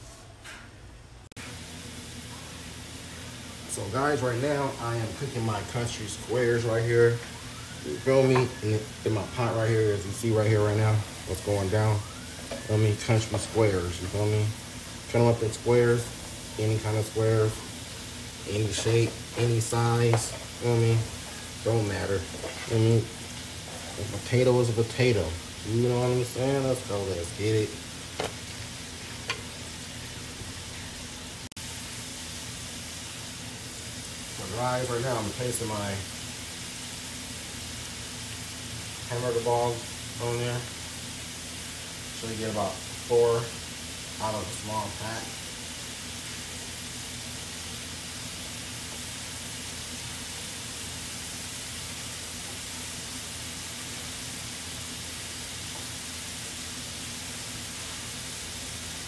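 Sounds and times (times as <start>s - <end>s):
oil bubbling sizzle: 1.3s - 59.0s.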